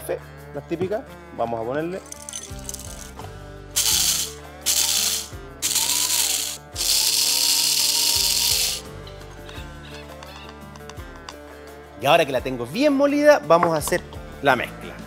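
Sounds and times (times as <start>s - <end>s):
background music: 0.0s - 15.0s
coffee grinder chopping peppercorns: 3.8s - 8.8s.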